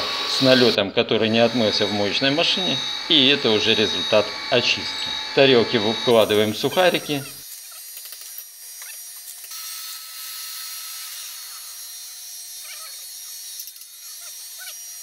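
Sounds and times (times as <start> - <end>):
workshop hiss: 0.0 - 7.4.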